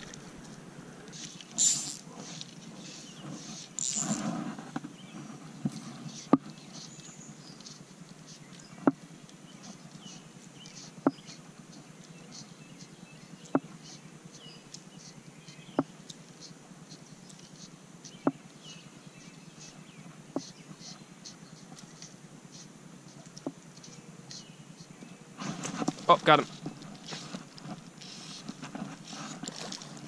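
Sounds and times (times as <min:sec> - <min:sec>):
small high chirps: 0:01.1 - 0:02.0, 0:03.7 - 0:04.2
fly line ticking: 0:03.6 - 0:04.3.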